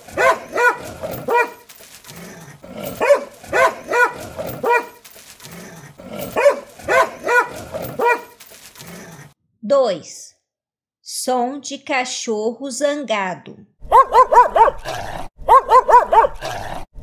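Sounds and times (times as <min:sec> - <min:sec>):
dog barking angrily: 0:00.0 - 0:09.3, 0:13.8 - 0:16.9.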